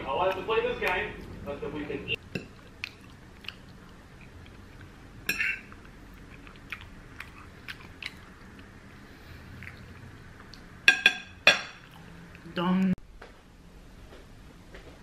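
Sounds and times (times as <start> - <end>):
person chewing: 2.2 - 10.7.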